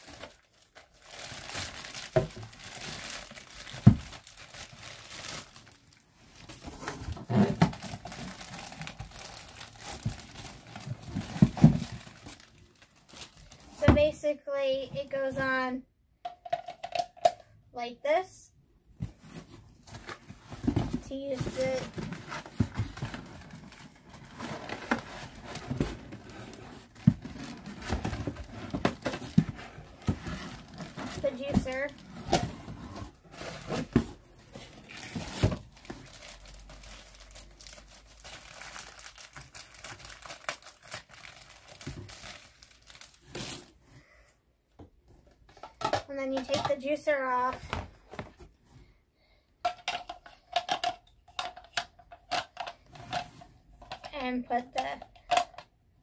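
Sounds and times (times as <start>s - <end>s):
plastic wrapping crinkling: 0.0s - 13.8s, 34.6s - 43.7s.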